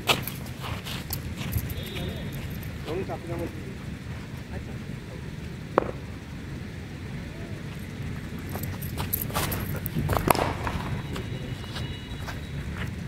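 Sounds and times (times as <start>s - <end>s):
cricket bat crack: 5.7s - 6.2s, 9.4s - 12.0s
ball knocks: 5.8s - 6.0s.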